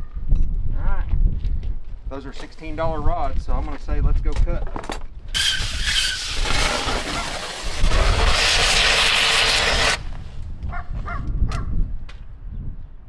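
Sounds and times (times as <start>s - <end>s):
cutting rod burning hiss: 5.4s - 10.1s.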